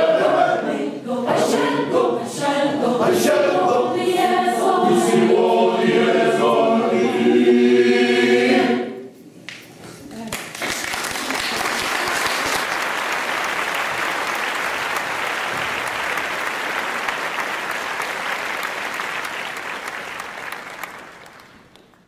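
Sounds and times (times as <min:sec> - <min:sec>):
audience applauding: 0:10.2 - 0:22.0.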